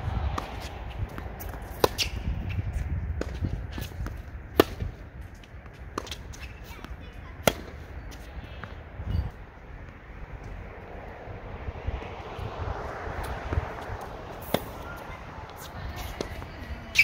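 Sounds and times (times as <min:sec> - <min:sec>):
low wind rumble: 0:00.0 - 0:17.0
tennis ball bouncing: 0:00.2 - 0:10.7, 0:13.2 - 0:17.0
tennis racket hitting ball: 0:00.3 - 0:02.3, 0:03.2 - 0:07.9, 0:13.2 - 0:17.0.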